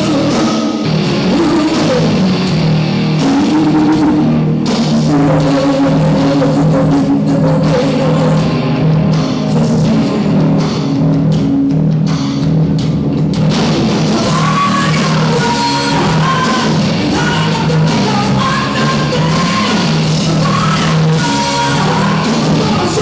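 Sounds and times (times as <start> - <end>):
woman singing: 0.0 - 2.2, 5.0 - 8.5, 14.2 - 23.0
live rock band playing: 0.0 - 23.0.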